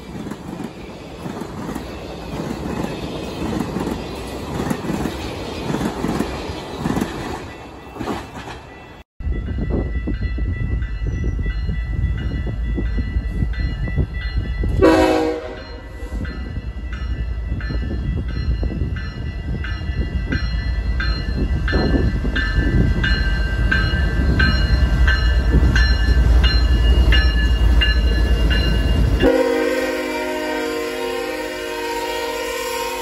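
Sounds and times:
diesel locomotives rumbling past: 0:00.0 - 0:33.0
train horn blast: 0:14.8 - 0:16.2, 0:29.2 - 0:33.0
bell ringing: 0:15.6 - 0:29.3.

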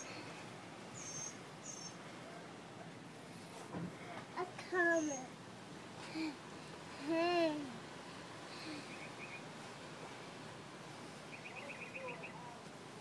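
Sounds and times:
faint high chirps: 0:00.9 - 0:02.0
child straining vocal sound: 0:07.0 - 0:07.8.

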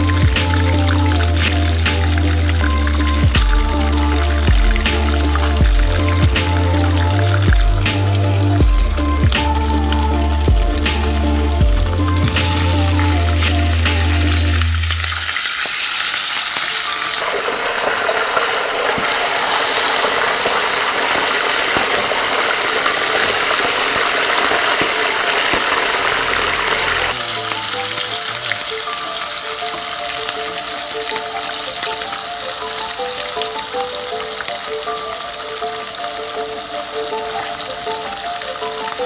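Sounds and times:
background music with held notes: 0:00.0 - 0:17.2, 0:27.1 - 0:39.0
fish sizzling in hot oil: 0:00.0 - 0:39.0.

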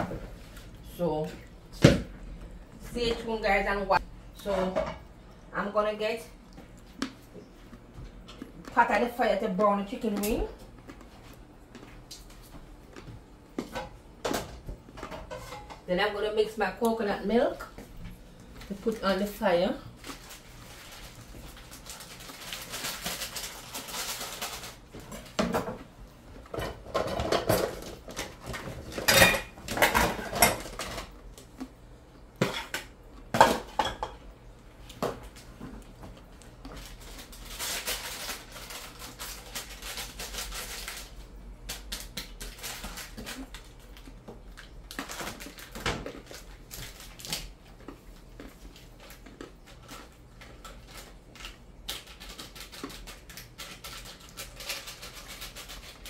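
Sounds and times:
dishes and pots clattering: 0:13.6 - 0:15.8, 0:26.5 - 0:31.1, 0:32.4 - 0:34.2.

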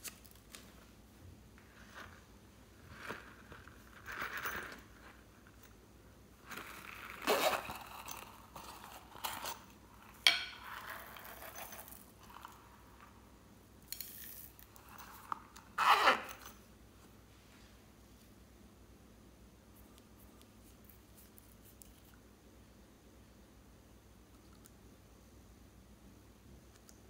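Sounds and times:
rummaging in purse: 0:01.6 - 0:05.8, 0:06.4 - 0:13.0, 0:14.2 - 0:16.6
zipper rasping: 0:06.5 - 0:09.7, 0:14.8 - 0:16.6.

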